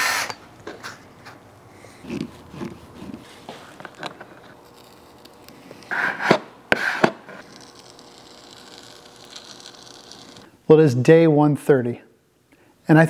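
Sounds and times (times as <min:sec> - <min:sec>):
squeegee scraping plastic: 0:02.0 - 0:10.5.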